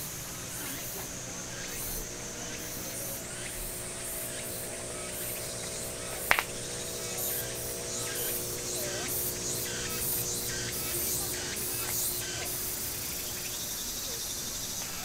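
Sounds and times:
background hiss: 0:00.0 - 0:15.0
faint hum: 0:00.0 - 0:15.0
sharp click: 0:05.0 - 0:12.5.

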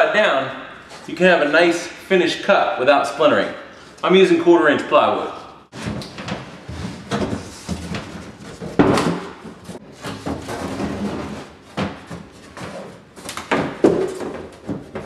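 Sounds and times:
plywood knocking and scraping on cabinet: 0:05.7 - 0:15.0.

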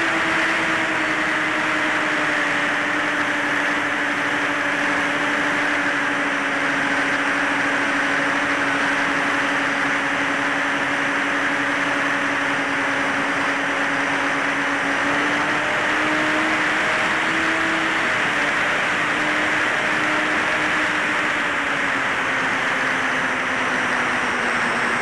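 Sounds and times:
electric motors and propellers humming: 0:00.0 - 0:25.0.

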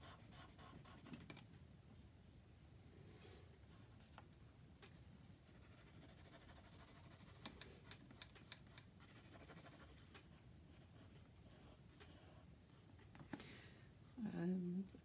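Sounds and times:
pencil scratching on paper: 0:00.0 - 0:01.2, 0:05.4 - 0:10.1.

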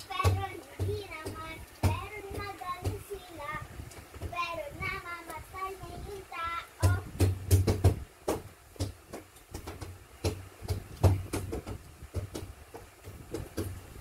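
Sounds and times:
child beatboxing: 0:00.0 - 0:07.7.

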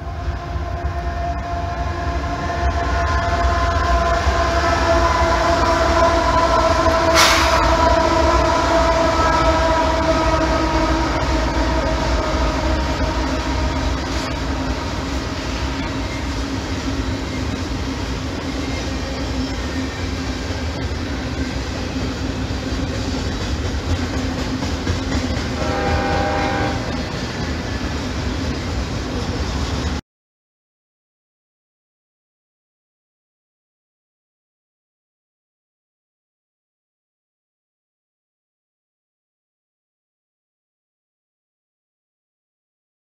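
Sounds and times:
diesel locomotives passing: 0:00.0 - 0:30.0
train cars rumbling on rails: 0:00.0 - 0:30.0.

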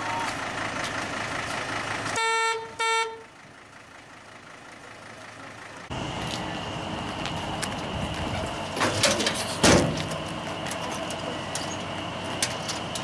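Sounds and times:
engine running: 0:00.0 - 0:13.0
truck horn toots: 0:02.2 - 0:03.3.

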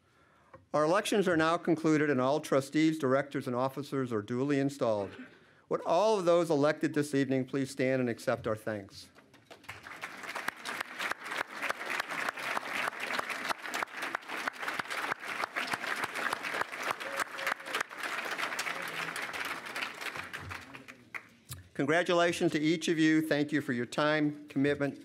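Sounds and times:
audience applauding: 0:09.4 - 0:21.4.

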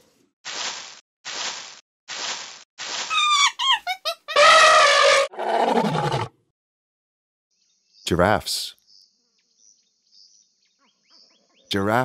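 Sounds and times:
quick squeaky toots: 0:03.1 - 0:05.3.

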